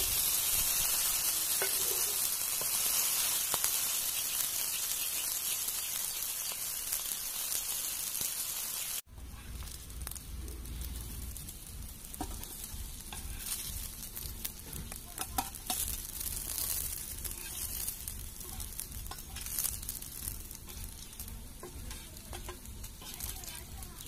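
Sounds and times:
fish sizzling in oil: 0.0 - 24.0
spoon scraping a pan: 1.5 - 3.0, 12.2 - 13.8, 14.6 - 24.0.

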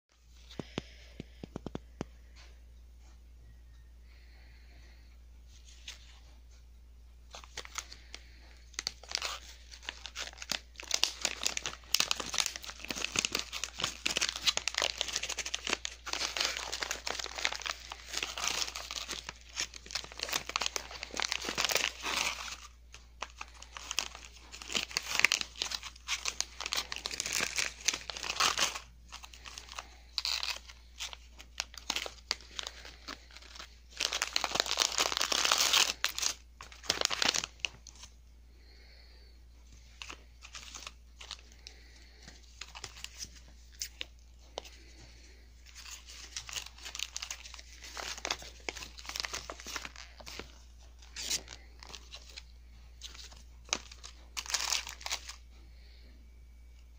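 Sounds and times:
plastic bag crinkling: 7.3 - 55.6.

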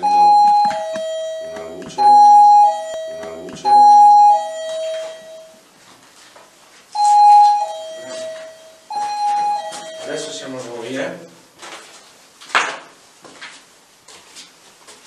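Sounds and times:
electronic two-tone chime: 0.0 - 5.6, 7.0 - 10.4.

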